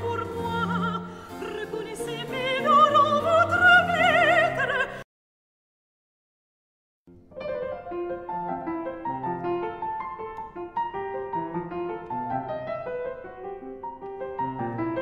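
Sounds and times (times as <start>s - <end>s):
piano music: 0.0s - 4.9s, 7.1s - 15.0s.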